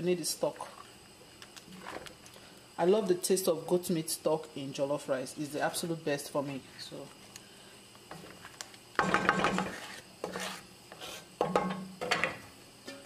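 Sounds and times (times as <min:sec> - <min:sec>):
wooden spoon scraping a pot: 0:08.2 - 0:11.3.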